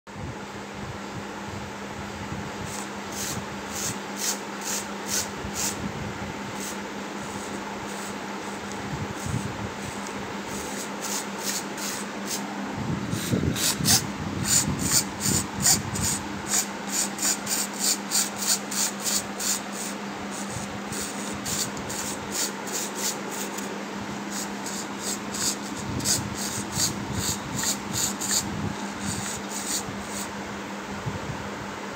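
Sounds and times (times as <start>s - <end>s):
steady low hum: 0.1s - 31.9s
servo whirring in short bursts: 6.5s - 23.7s, 24.3s - 30.3s.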